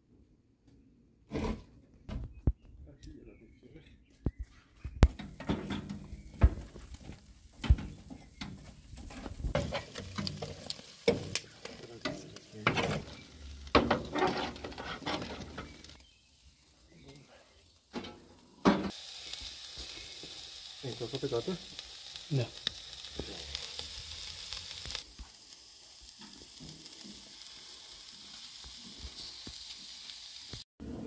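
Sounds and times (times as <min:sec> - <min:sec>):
food sizzling on grill: 0:05.0 - 0:31.0.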